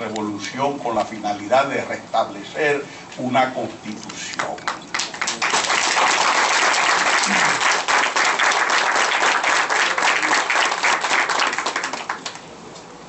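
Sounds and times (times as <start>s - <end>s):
audience applauding: 4.4s - 12.5s.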